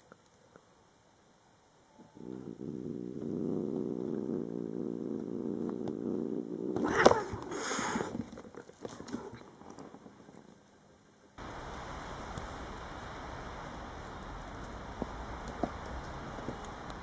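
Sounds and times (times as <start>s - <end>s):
cat purring: 1.9s - 11.0s
rustling and scuffling: 6.8s - 10.8s.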